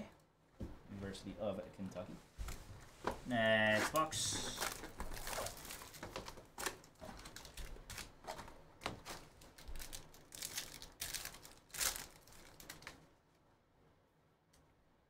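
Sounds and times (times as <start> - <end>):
packs rustling and crinkling: 2.4 - 13.1
wrapper being torn open: 3.9 - 13.0.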